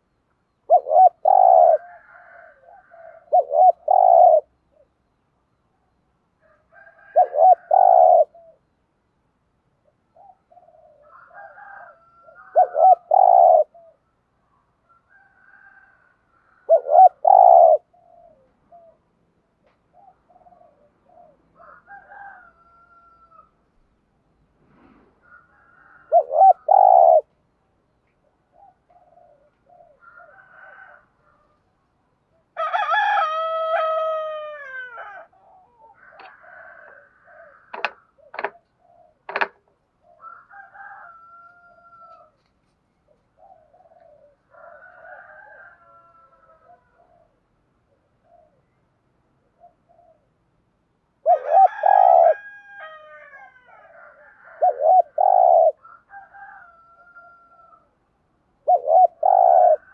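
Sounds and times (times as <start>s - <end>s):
faint bird calls: 0.0s - 8.9s, 9.8s - 15.6s, 16.2s - 19.1s, 24.8s - 32.5s, 34.6s - 45.2s, 58.6s - 59.9s
dove cooing: 0.6s - 5.0s, 6.5s - 8.7s, 10.1s - 14.0s, 16.4s - 19.1s, 19.9s - 23.5s, 24.8s - 27.3s, 28.2s - 31.6s, 33.6s - 42.3s, 43.3s - 48.8s, 49.4s - 50.3s, 51.2s - 57.8s, 58.6s - 59.9s
rooster crowing: 1.0s - 4.3s, 6.4s - 8.3s, 11.0s - 13.6s, 14.9s - 17.7s, 21.6s - 23.6s, 25.2s - 27.2s, 30.0s - 31.6s, 32.6s - 38.0s, 40.2s - 42.4s, 44.5s - 47.2s, 51.3s - 58.0s, 58.9s - 59.9s.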